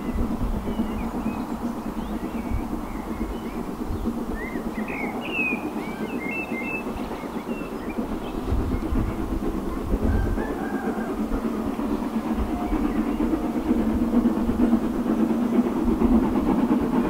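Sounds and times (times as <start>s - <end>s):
small birds chirping: 0.0s - 9.4s
distant steam locomotive rumble: 0.0s - 17.0s.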